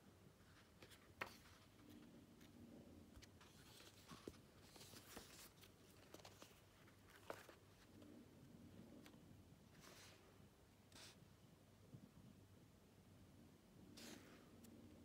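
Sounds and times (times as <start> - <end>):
pages rustling: 0.4 - 8.2.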